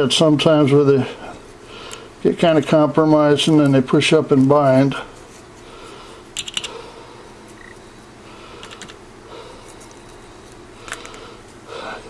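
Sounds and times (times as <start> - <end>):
small tools clicking on workbench: 6.4 - 6.7.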